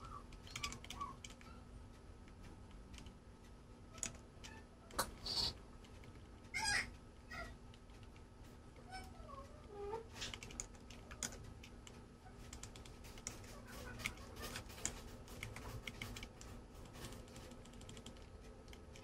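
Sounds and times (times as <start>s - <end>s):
keyboard keys clicking: 0.0s - 1.6s, 3.9s - 5.0s, 10.2s - 19.0s.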